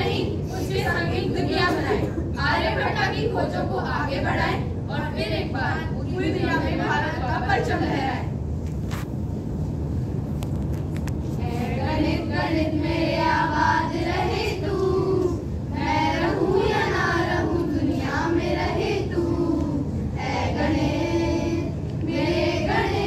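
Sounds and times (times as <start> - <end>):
girls singing in unison: 0.0 - 7.9, 11.4 - 23.0.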